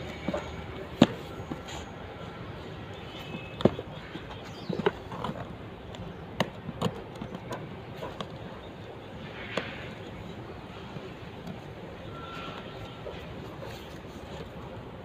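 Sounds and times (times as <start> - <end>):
steady background hum: 0.0 - 15.0
knocks and taps on cardboard box: 3.2 - 5.0.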